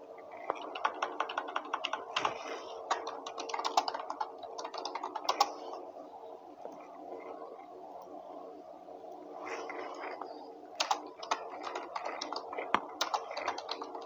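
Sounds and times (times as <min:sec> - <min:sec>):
computer keyboard typing: 0:00.3 - 0:05.7, 0:10.8 - 0:14.0.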